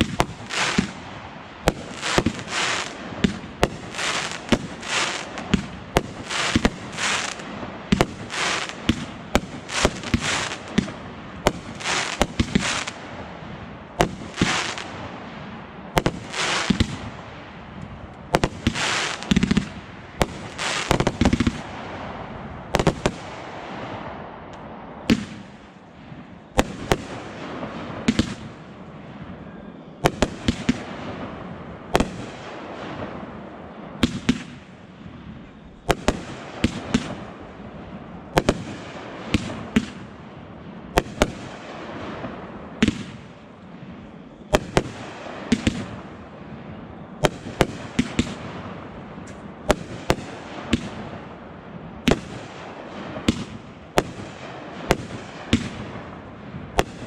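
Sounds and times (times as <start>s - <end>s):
firework shells launching hiss: 0.0s - 1.0s, 1.7s - 13.0s, 18.4s - 19.6s, 20.5s - 21.6s
fireworks bursting bangs: 0.0s - 24.4s, 25.0s - 29.4s, 30.0s - 57.0s.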